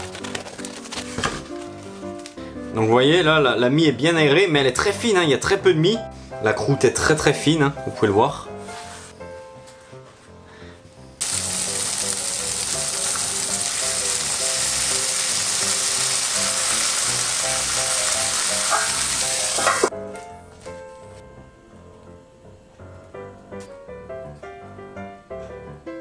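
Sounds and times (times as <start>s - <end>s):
soft background music: 0.0s - 26.0s
food sizzling in frying pan: 11.2s - 19.9s.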